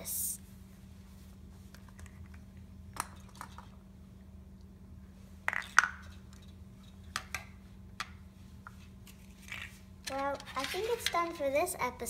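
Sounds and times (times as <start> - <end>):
steady low hum: 0.0 - 12.0
plastic toys clinking on metal tray: 10.1 - 11.4.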